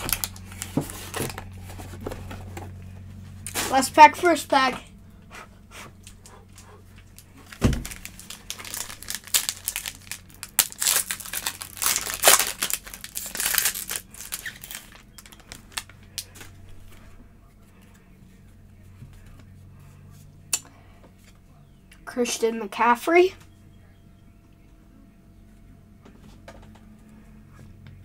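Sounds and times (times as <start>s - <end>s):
foil wrapper tearing and crinkling: 0.0s - 1.8s, 7.0s - 16.4s.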